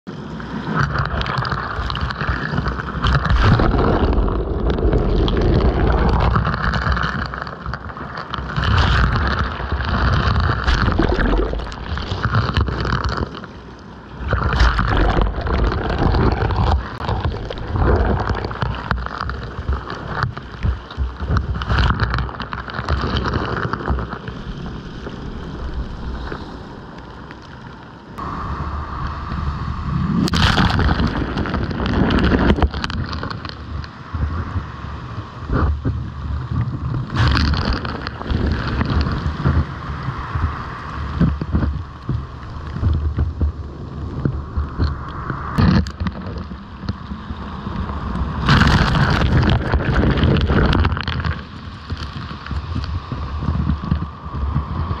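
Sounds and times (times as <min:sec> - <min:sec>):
waves washing over pebbles: 0:00.1 - 0:55.0
heavy low rumble: 0:03.1 - 0:07.2, 0:14.4 - 0:20.7, 0:21.3 - 0:33.6, 0:36.5 - 0:46.9.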